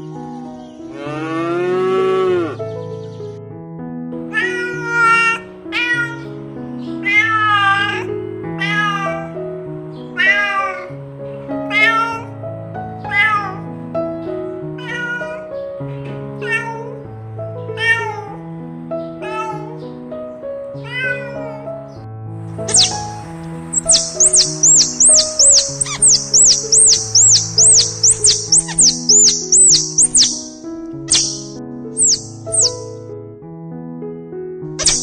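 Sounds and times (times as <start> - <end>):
background music: 0.0 - 33.4
cat meowing: 4.3 - 6.4, 7.0 - 9.4, 10.1 - 10.9, 11.6 - 12.3, 13.0 - 13.6, 14.8 - 17.1, 17.8 - 18.4, 19.1 - 19.8, 20.8 - 21.7, 22.7 - 30.5, 31.1 - 32.9, 34.8 - 35.0.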